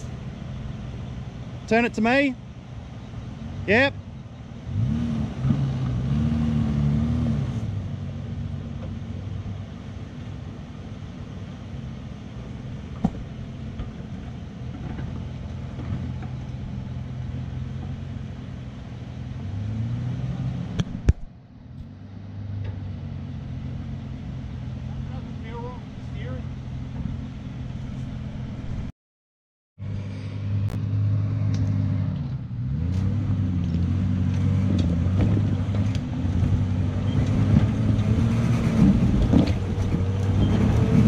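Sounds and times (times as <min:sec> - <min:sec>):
four-wheel drive engine revving: 0:00.0 - 0:09.7, 0:12.0 - 0:21.1, 0:30.0 - 0:41.0.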